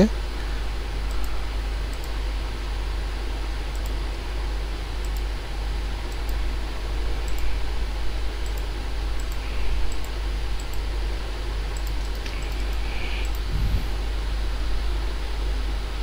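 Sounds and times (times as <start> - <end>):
steady low hum: 0.0 - 16.0
computer mouse clicking: 1.0 - 2.2, 3.7 - 4.0, 5.0 - 5.3, 6.0 - 6.4, 7.2 - 7.5, 8.4 - 10.9, 11.7 - 13.5.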